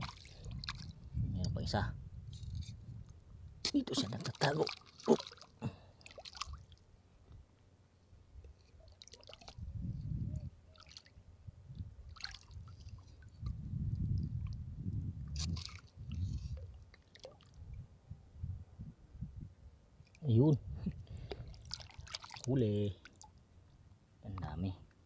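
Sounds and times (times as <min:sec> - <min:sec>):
machete squelching in wet sand: 0:15.4 - 0:15.8.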